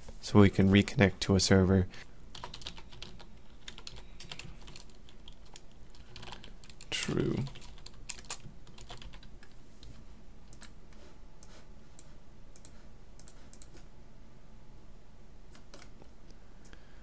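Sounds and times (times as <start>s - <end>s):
faint low hum: 0.0s - 17.0s
keyboard and mouse clicks: 7.5s - 9.6s, 10.5s - 10.8s, 11.4s - 13.9s, 15.5s - 16.8s.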